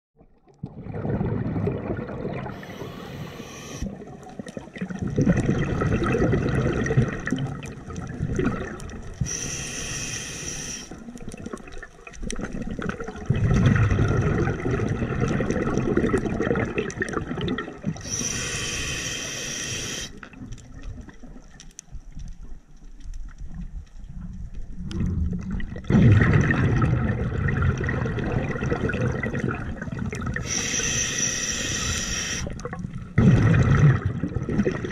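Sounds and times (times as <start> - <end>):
exhaled bubbles rushing: 0.2 - 9.5, 10.8 - 18.4, 24.7 - 34.9
hissing inhale through regulator: 2.4 - 3.9, 9.2 - 11.0, 18.0 - 20.3, 30.4 - 32.6.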